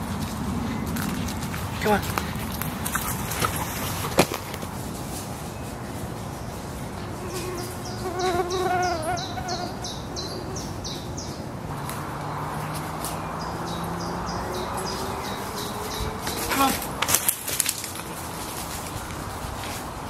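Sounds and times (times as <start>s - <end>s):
insect buzzing: 7.2s - 11.1s.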